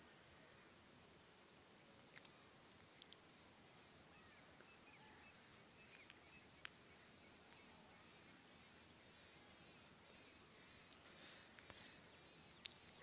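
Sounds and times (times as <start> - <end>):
faint background hiss: 0.0 - 13.0
soft clicks: 2.1 - 3.2
faint high chirps: 2.1 - 13.0.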